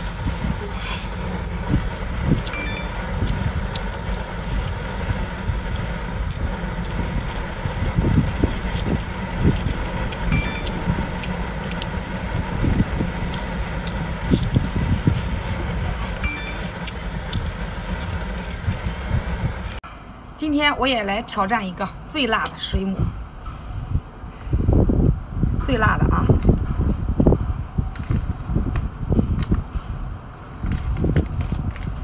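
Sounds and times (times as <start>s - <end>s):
wind on microphone: 0.0s - 19.8s, 22.7s - 32.0s
person chewing and sucking: 6.2s - 15.2s.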